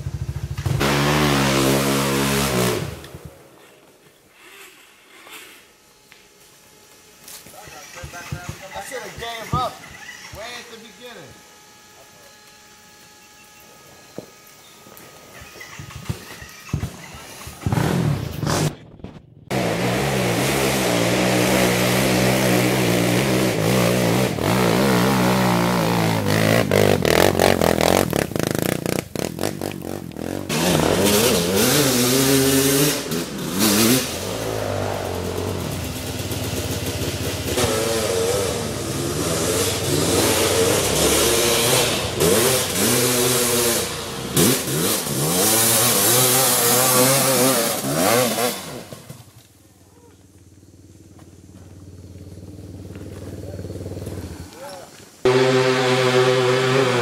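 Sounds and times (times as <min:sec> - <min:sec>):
off-road engine revving hard: 0:00.0 - 0:03.3, 0:17.4 - 0:18.8, 0:19.5 - 0:49.3, 0:52.3 - 0:57.0.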